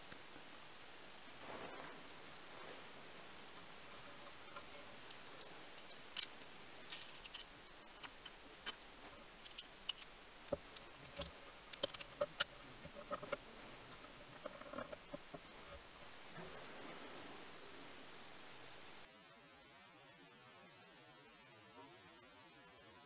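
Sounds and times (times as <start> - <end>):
faint steady hiss: 0.0 - 23.0
metal parts clicking and tapping: 3.6 - 15.8.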